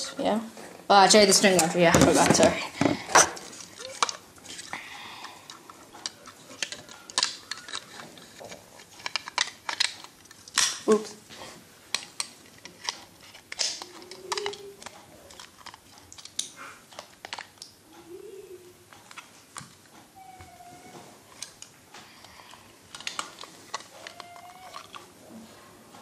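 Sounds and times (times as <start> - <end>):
hard plastic parts clicking: 11.9 - 17.6.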